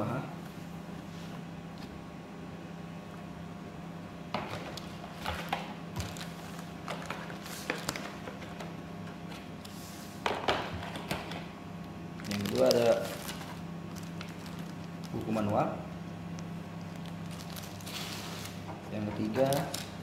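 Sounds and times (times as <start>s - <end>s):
steady low hum: 0.0s - 20.0s
packaging rustling: 4.5s - 8.7s, 12.2s - 15.7s, 16.8s - 18.6s, 19.2s - 20.0s.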